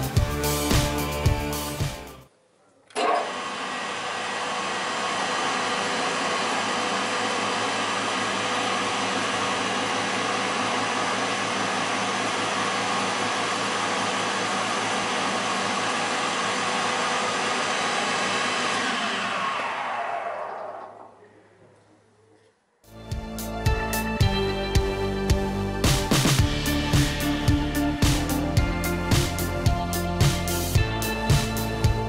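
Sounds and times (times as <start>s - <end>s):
table saw running: 3.0s - 21.2s.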